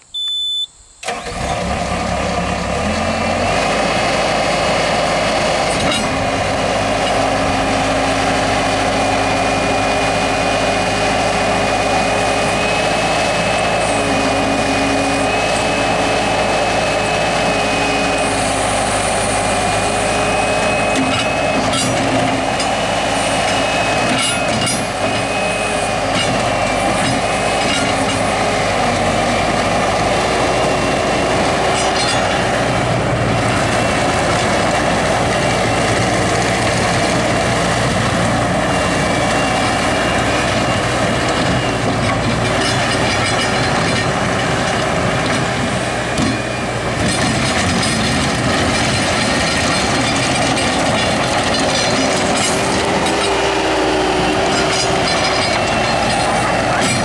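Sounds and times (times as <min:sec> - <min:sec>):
diesel engine starting and running: 0:00.0 - 0:57.0.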